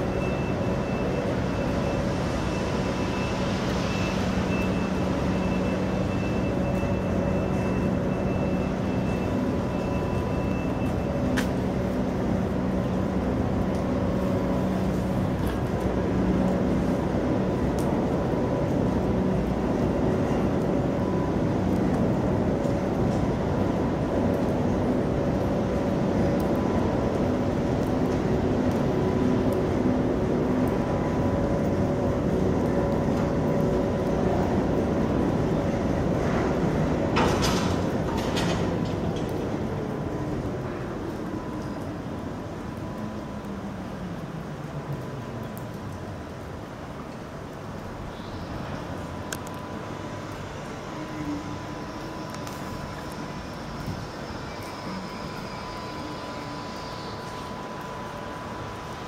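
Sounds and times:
machinery rumbling and humming: 0.0 - 59.0.

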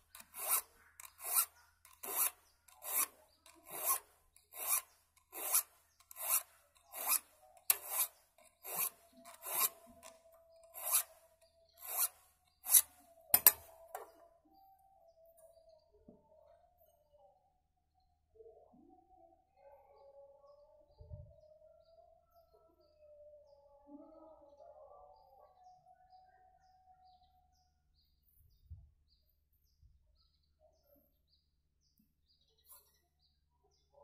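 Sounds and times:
file rasping on saw teeth: 0.0 - 14.1.

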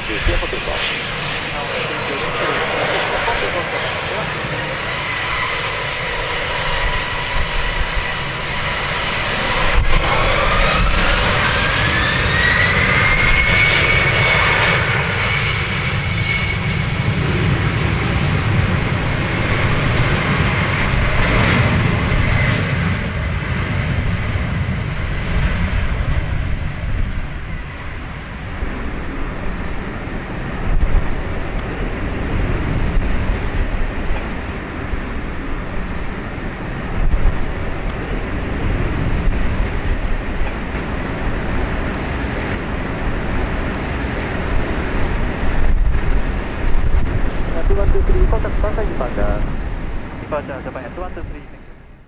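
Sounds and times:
jet engines spooling up: 0.0 - 51.6
rising engine whine: 0.0 - 52.0.

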